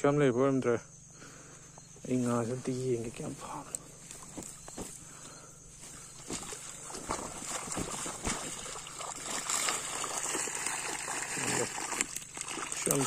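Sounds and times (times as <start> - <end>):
water splashing and sloshing: 5.7 - 13.0
net knocking: 6.1 - 12.6.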